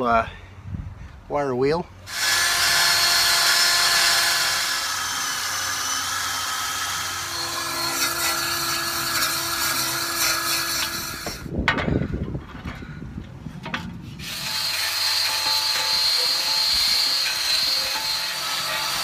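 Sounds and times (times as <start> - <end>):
drill with wire brush on bolt: 2.1 - 11.5, 14.2 - 19.0.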